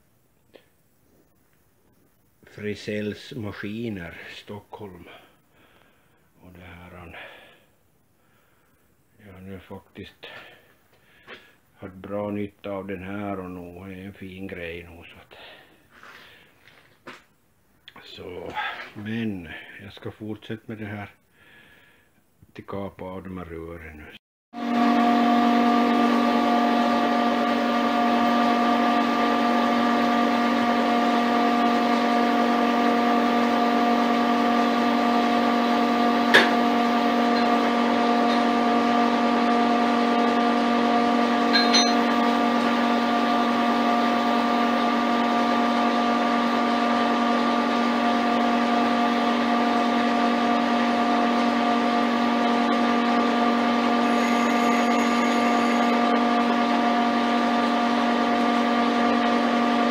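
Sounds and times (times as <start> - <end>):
lathe humming: 24.6 - 59.9.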